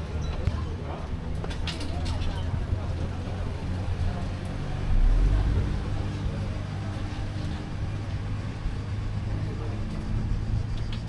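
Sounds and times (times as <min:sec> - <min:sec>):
road train engine running: 0:00.0 - 0:11.0
car passing close: 0:03.5 - 0:07.8.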